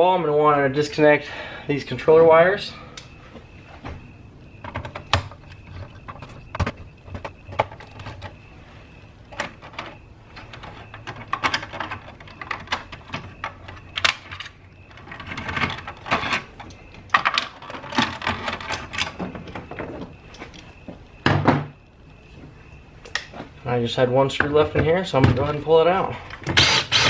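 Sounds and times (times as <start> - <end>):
clicks taps and rustles of wires: 4.6 - 8.5, 9.2 - 21.1, 21.8 - 23.6.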